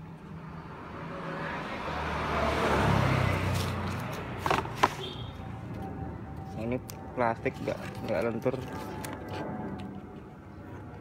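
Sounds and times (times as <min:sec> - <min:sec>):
vehicle passing by: 0:00.4 - 0:06.4.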